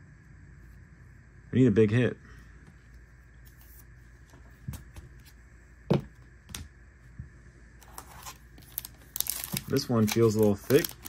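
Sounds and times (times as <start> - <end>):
plastic sleeve rustling: 7.8 - 11.0.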